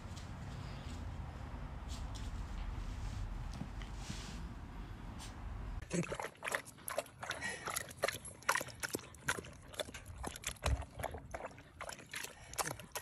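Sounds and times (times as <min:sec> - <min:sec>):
dog lapping water: 0:05.8 - 0:13.0.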